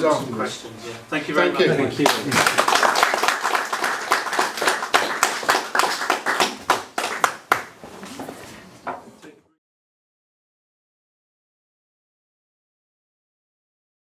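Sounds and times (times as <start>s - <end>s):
audience applauding: 2.0s - 7.8s.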